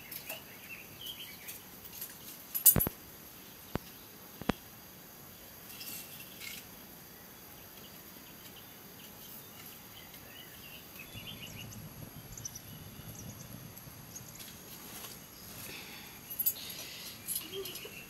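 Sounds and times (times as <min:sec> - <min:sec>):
faint insect chirps: 0:00.0 - 0:18.0
steady hiss: 0:00.0 - 0:18.0
faint bird chirps: 0:05.3 - 0:18.0
soft low rustle: 0:11.0 - 0:17.3.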